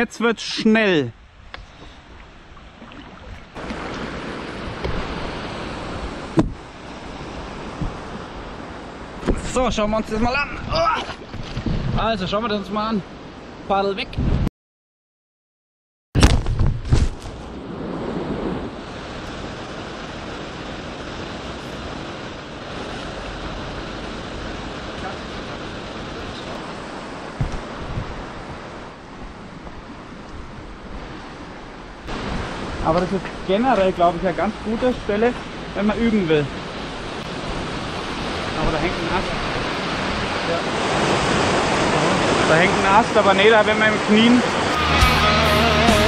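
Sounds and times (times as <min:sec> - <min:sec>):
fast river current rushing: 0:00.0 - 0:13.9, 0:17.2 - 0:46.0
rustle: 0:16.2 - 0:34.1.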